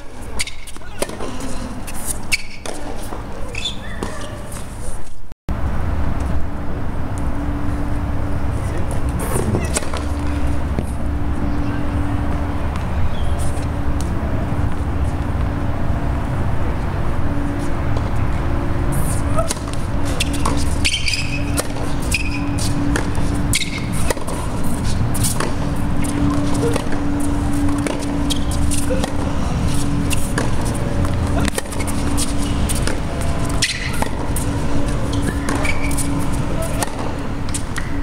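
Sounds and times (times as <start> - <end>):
tennis ball hitting racket: 0.2 - 4.7, 8.9 - 15.5, 18.9 - 38.0
low rumble and hum: 5.5 - 38.0
ball bouncing on hard court: 25.2 - 38.0.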